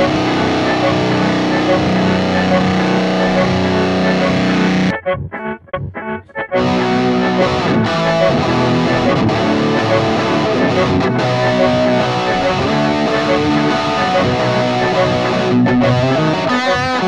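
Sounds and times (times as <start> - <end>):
distorted electric guitar riff: 0.0 - 17.0
recorded backing track: 0.0 - 17.0.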